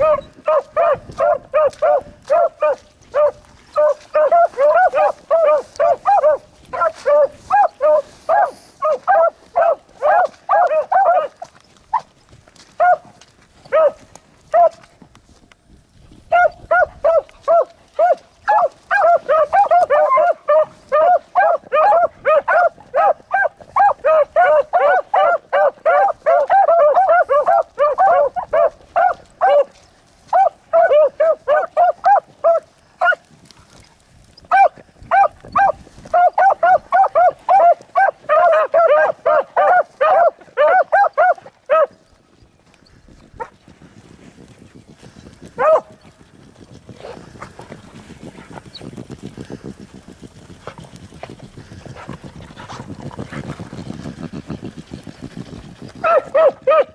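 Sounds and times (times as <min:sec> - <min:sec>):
hounds baying: 0:00.0 - 0:12.1, 0:12.8 - 0:14.9, 0:16.3 - 0:33.3, 0:34.5 - 0:42.0, 0:45.5 - 0:45.9, 0:56.0 - 0:56.9.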